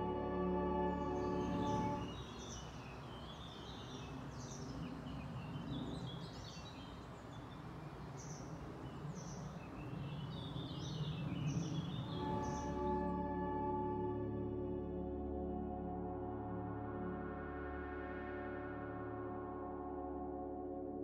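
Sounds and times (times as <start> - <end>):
outdoor background noise: 0.0 - 13.9
songbirds singing: 0.8 - 13.2.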